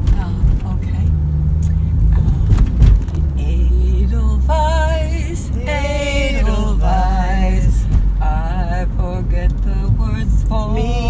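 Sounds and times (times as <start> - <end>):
car rumble: 0.0 - 11.0
women singing: 3.4 - 11.0.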